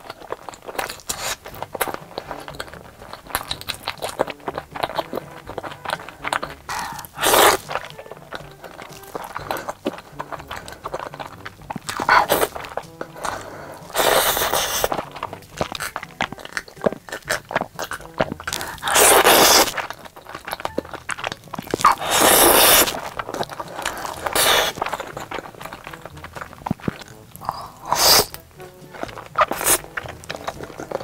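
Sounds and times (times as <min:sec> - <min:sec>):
crunching and chewing: 0:00.0 - 0:31.0.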